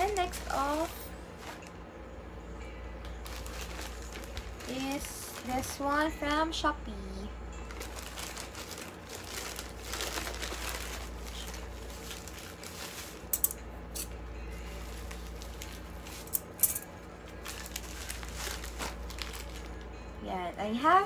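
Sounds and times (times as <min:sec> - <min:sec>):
plastic pouch crinkling: 0:03.2 - 0:05.8, 0:07.7 - 0:13.5, 0:17.3 - 0:19.8.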